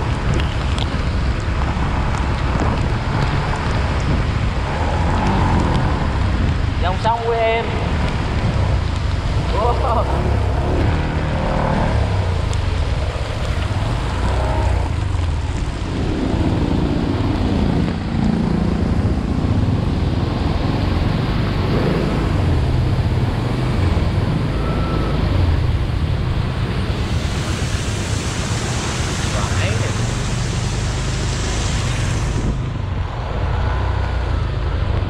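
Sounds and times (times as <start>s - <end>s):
wind on microphone: 0.0s - 35.0s
tyres hissing through water: 26.5s - 32.7s.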